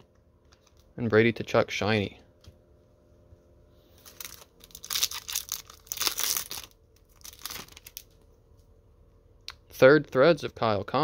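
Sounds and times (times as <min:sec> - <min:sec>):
sticker packet wrapper tearing: 0:04.0 - 0:08.1.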